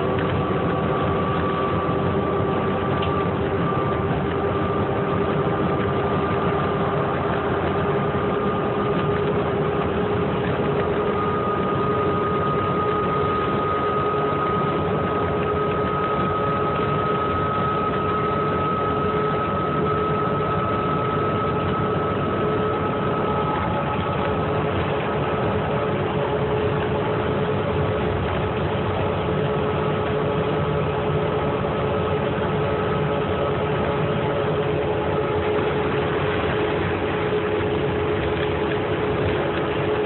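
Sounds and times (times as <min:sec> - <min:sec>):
bus engine droning: 0:00.0 - 0:40.0
steady whining tones: 0:00.0 - 0:40.0.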